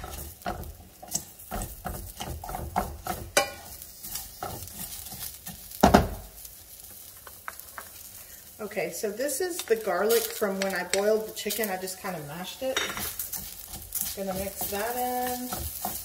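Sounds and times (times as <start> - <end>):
spoon knocking pan: 0.0 - 6.3, 9.6 - 11.6, 12.6 - 16.0
spoon scraping rice in pan: 0.0 - 8.1, 12.4 - 16.0
light sizzle: 0.0 - 16.0.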